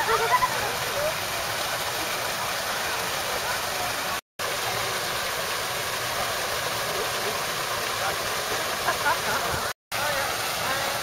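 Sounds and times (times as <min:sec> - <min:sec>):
waterfall pouring into pool: 0:00.0 - 0:11.0.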